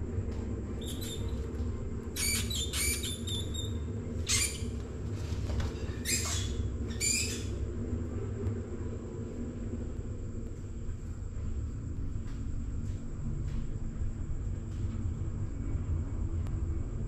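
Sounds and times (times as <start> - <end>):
steady low hum: 0.0 - 17.0
mouse squeaking: 0.8 - 1.5, 2.1 - 4.8, 5.8 - 7.7.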